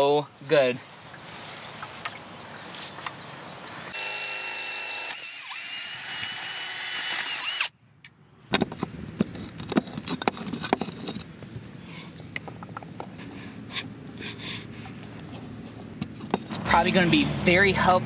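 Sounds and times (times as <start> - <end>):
cordless drill boring into concrete: 3.9 - 7.7.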